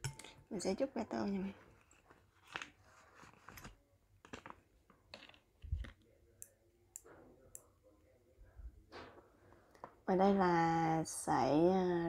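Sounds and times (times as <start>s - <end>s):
chopsticks tapping a bowl: 0.0s - 0.4s
plastic packet against bowl: 1.7s - 6.1s.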